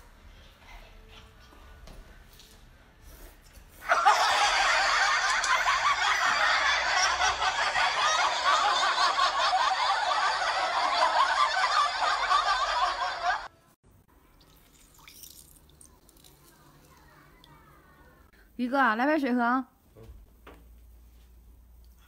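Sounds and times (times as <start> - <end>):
crowd laughing: 3.8 - 13.5.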